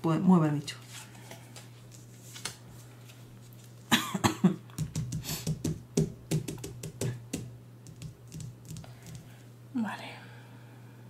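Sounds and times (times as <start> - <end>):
steady low hum: 0.0 - 11.0
cards and cardboard pieces tapping: 4.7 - 9.3.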